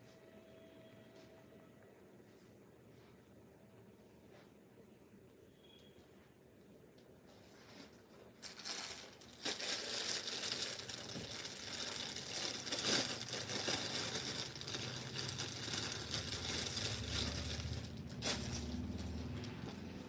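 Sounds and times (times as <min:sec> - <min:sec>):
plastic and cloth rustling: 0:07.2 - 0:20.0.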